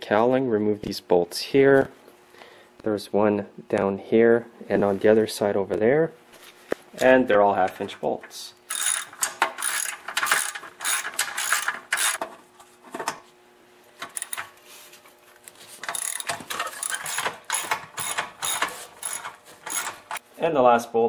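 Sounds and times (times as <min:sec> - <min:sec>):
ratchet wrench clicking: 0:08.7 - 0:12.2, 0:14.1 - 0:14.4, 0:15.8 - 0:20.2.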